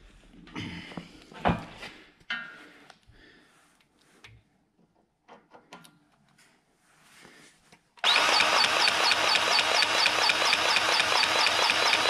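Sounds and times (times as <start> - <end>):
grease gun pump pulsing: 8.0 - 12.0.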